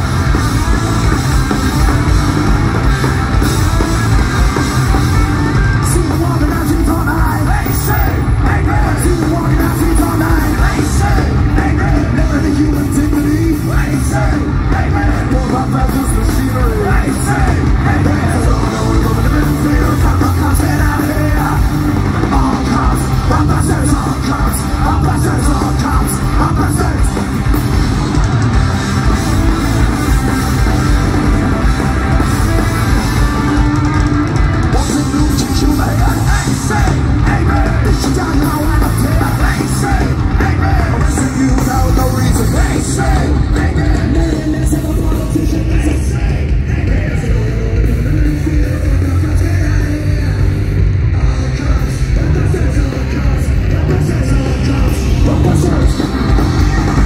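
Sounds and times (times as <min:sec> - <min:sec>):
punk rock band playing live: 0:00.0 - 0:57.0
shouted vocals: 0:32.7 - 0:57.0.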